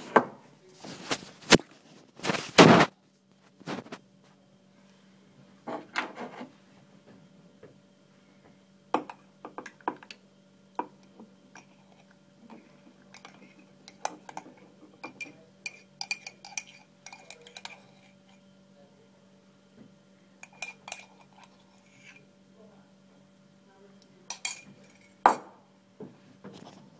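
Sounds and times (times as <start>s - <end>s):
ceramic crockery knocking and clinking: 9.0s - 10.1s, 13.1s - 18.0s, 24.3s - 25.6s
cutlery clinking against crockery: 10.8s - 18.4s, 20.4s - 22.3s, 24.3s - 25.5s.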